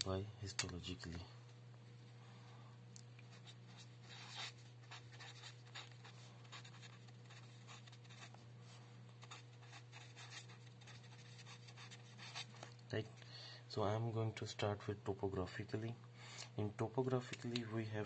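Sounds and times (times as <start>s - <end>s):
steady low hum: 0.0s - 18.0s
marker scratching on surface: 3.3s - 8.4s, 9.2s - 12.6s.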